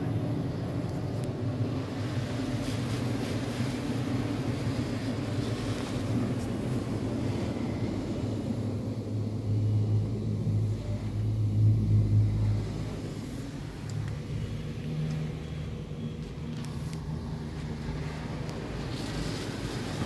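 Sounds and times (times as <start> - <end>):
car wash machinery hum: 0.0 - 20.0.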